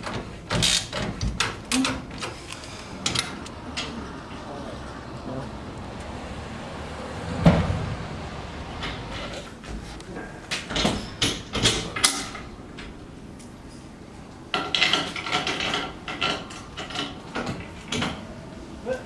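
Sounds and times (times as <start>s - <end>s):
metal fixings clinking: 8.7s - 18.4s.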